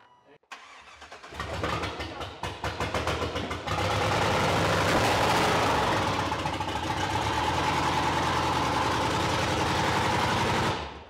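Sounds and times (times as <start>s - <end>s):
engine cranking and starting: 0.5s - 7.9s.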